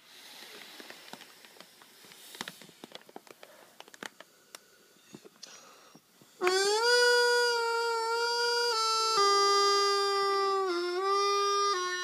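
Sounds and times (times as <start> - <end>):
faint hiss of air: 0.0 - 12.0
plastic bag crinkling: 0.6 - 4.3
bagpipe chanter reedy note: 6.4 - 12.0.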